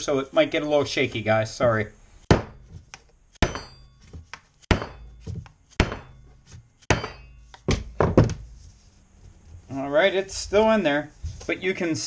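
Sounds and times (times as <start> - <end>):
mallet knocking on plastic pipe: 2.3 - 2.6.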